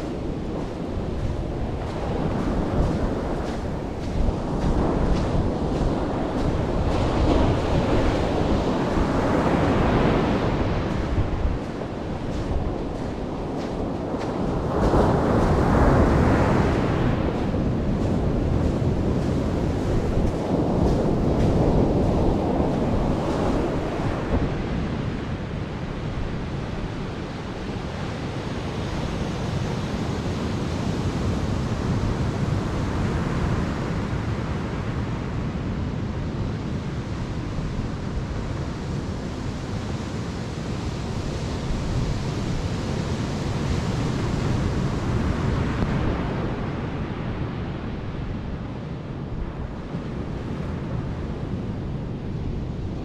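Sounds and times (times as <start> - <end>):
surf breaking on beach: 0.0 - 24.7
wind buffeting microphone: 0.0 - 53.0.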